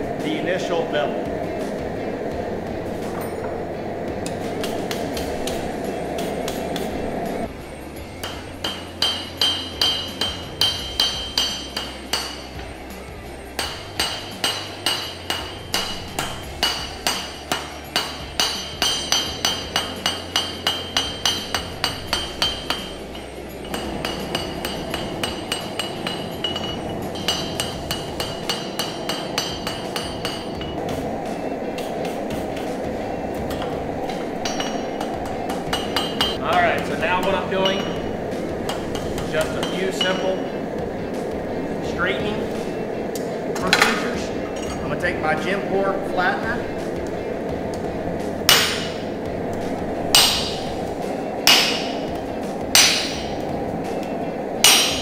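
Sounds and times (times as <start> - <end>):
steady rushing noise: 0.0 - 55.0
hammer ringing on anvil: 8.2 - 12.7, 13.6 - 30.8, 34.4 - 38.1, 38.7 - 40.6, 48.5 - 49.0, 50.1 - 50.8, 51.4 - 52.1, 52.7 - 53.4, 54.6 - 55.0.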